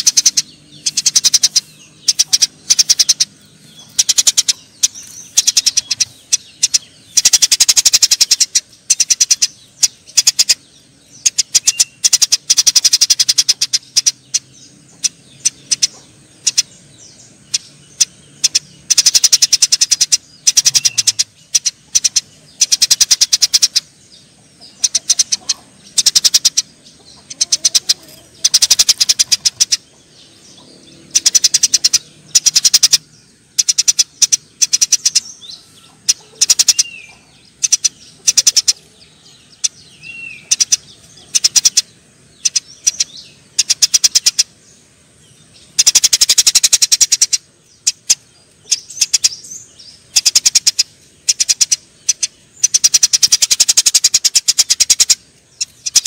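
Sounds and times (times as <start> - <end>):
sparrows chattering harshly: 0.0 - 56.0.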